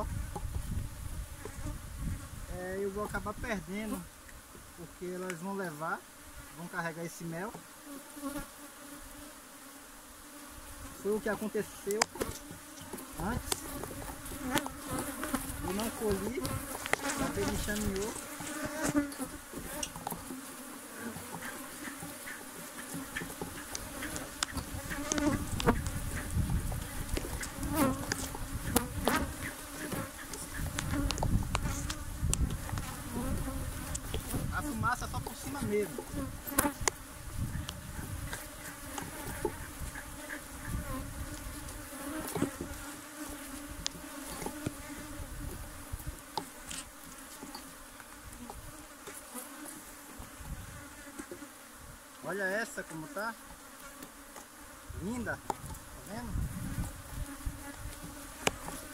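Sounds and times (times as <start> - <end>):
honeybees buzzing: 0.0 - 58.9
hive frames clicking and knocking: 11.5 - 34.5, 35.1 - 37.0, 37.6 - 45.2, 56.7 - 58.9.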